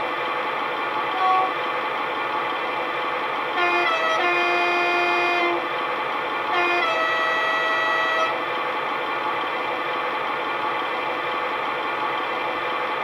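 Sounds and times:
diesel engine idling: 0.0 - 13.0
two-tone locomotive horn: 1.1 - 1.6, 3.5 - 5.7, 6.5 - 8.4.

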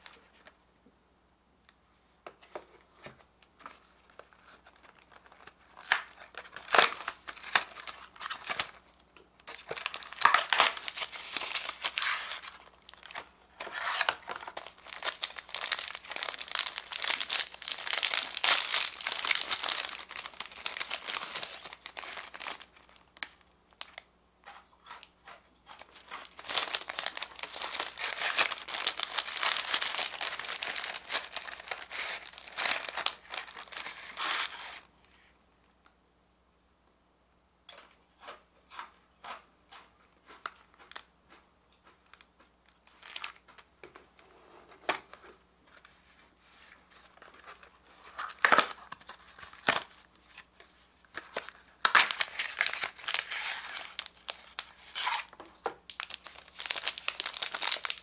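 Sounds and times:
plastic pouch crinkling and tearing: 4.1 - 24.1, 25.7 - 34.9, 42.8 - 43.4, 47.0 - 58.0
cardboard box crackling open: 26.2 - 34.6.

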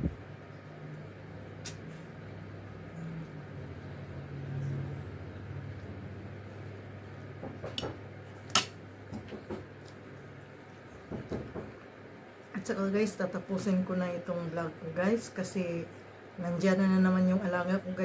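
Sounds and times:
steady low hum: 0.0 - 18.0.

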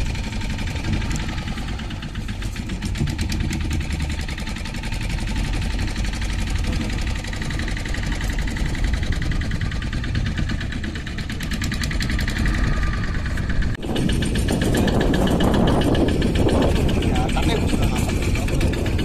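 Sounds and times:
outboard boat engine running: 0.0 - 19.0.

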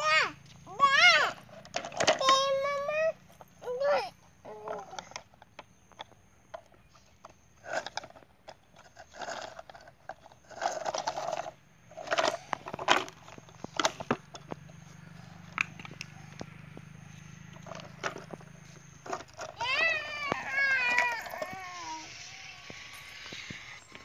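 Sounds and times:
gravel scraping and crunching: 6.8 - 24.0.

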